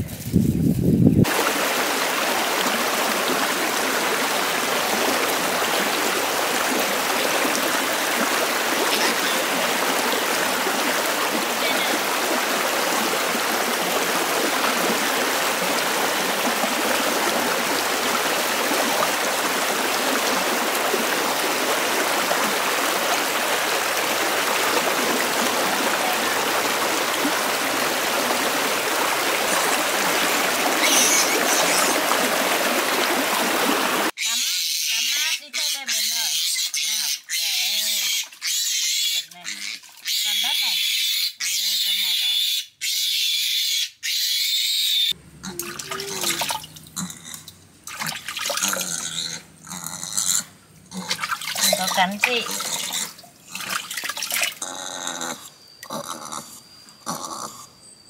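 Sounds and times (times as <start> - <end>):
creek rushing over stones: 1.2 - 34.2.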